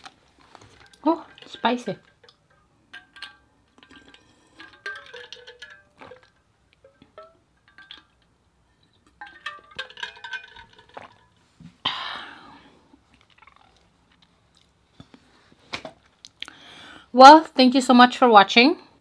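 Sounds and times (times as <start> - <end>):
ringing clinks inside bottle: 0.7 - 11.4
gulps of liquid: 13.1 - 14.0.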